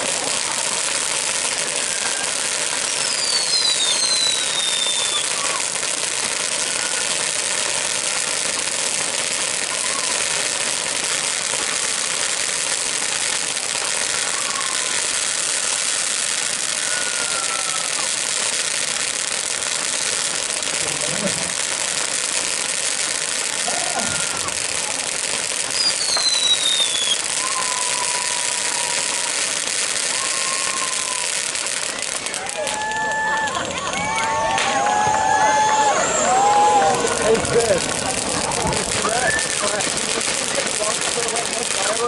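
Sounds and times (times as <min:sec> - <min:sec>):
firework hissing crackle: 0:00.0 - 0:42.0
thin falling whistles: 0:02.8 - 0:05.4, 0:25.7 - 0:29.0.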